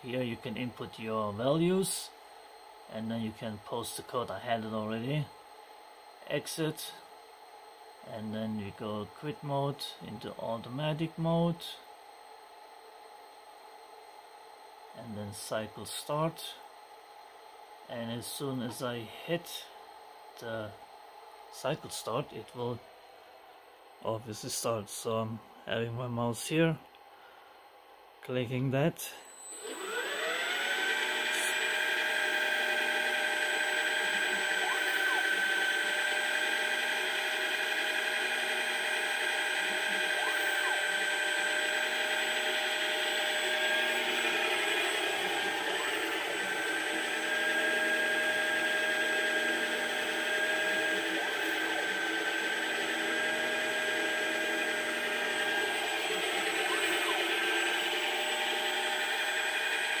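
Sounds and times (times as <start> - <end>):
lathe motors whining: 29.2 - 60.0.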